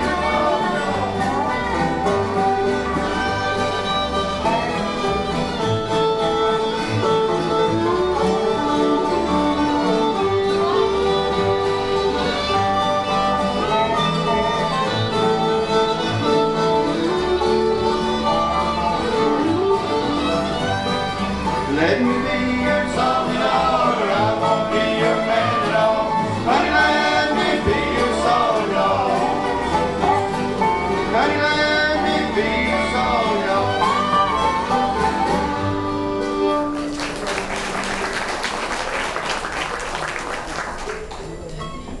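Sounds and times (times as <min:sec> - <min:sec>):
bluegrass band playing: 0:00.0 - 0:42.0
man singing lead: 0:21.7 - 0:29.8, 0:31.0 - 0:34.3
audience applause: 0:36.7 - 0:41.7.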